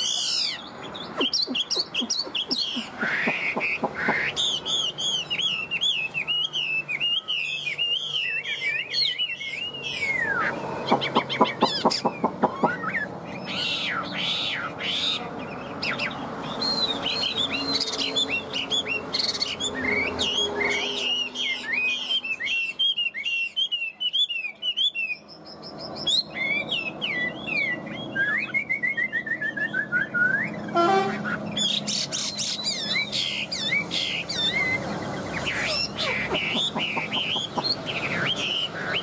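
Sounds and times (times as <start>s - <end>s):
bird singing whistled song: 0.0s - 14.7s, 15.8s - 39.0s
falling repeated bird notes: 0.0s - 15.1s, 24.7s - 39.0s
fast clicking bird notes: 1.2s - 4.4s, 10.9s - 12.8s, 36.3s - 38.5s.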